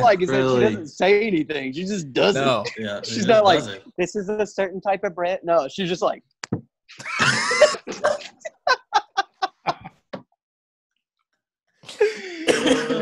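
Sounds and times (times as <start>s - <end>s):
voices: 0.0s - 4.7s
men laughing: 2.7s - 3.7s, 6.9s - 10.0s.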